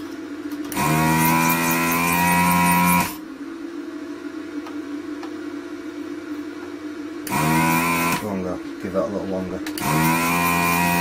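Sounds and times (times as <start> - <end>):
vacuum pump humming: 0.0 - 11.0.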